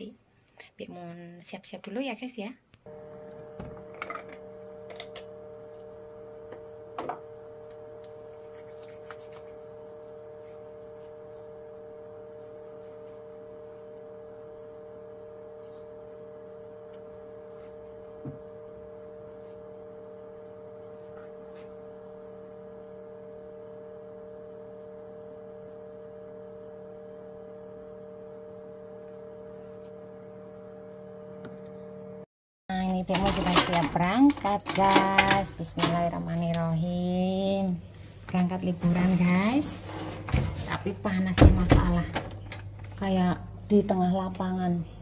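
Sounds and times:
steady hum: 2.9 - 32.3.

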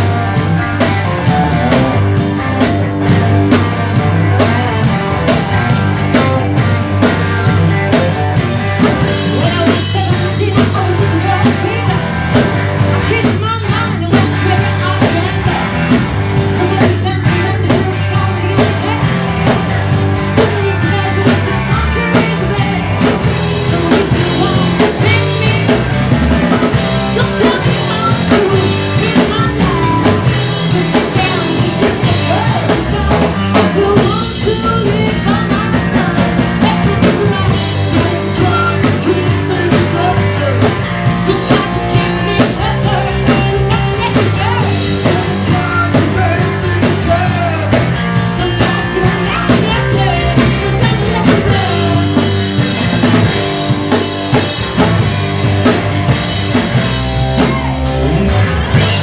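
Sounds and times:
drum kit beat: 0.0 - 59.0
electric bass: 0.0 - 59.0
electric guitars: 0.0 - 59.0
woman singing: 8.8 - 19.6, 20.2 - 25.9, 26.7 - 52.6.

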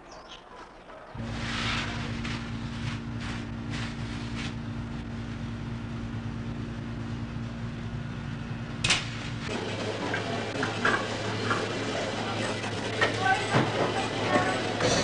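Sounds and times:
oven peel scraping: 1.2 - 4.6
kitchen equipment low hum: 1.2 - 15.0.

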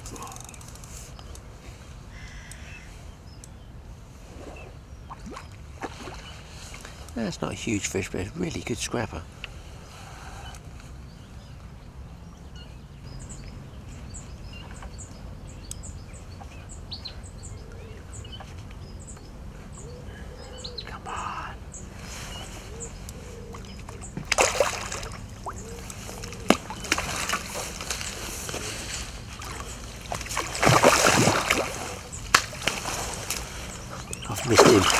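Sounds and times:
small birds chirping: 0.0 - 34.9
fish splashing in water: 23.6 - 28.2, 29.3 - 34.9.

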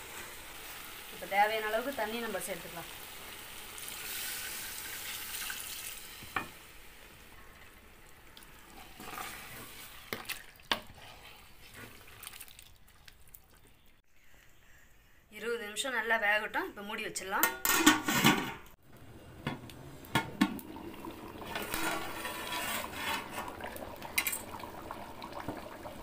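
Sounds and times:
water hissing in hot pot: 0.0 - 10.1, 20.4 - 26.0
wooden spatula stirring curry: 8.4 - 13.8.

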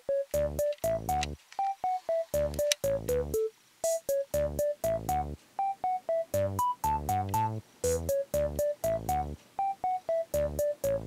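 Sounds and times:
bouncy synthesizer melody: 0.0 - 11.0.

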